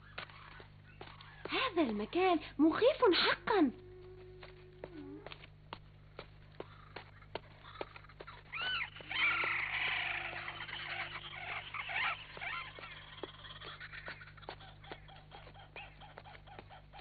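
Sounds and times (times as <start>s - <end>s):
running footsteps: 0.0s - 17.0s
chorus of chirping and squealing: 6.6s - 17.0s
animal screech: 8.5s - 13.2s.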